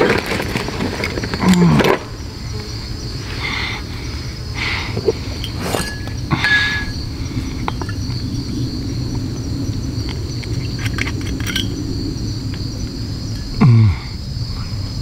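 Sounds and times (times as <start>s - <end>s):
insects chirping: 0.0s - 15.0s
glass bottle clinking: 5.4s - 7.0s.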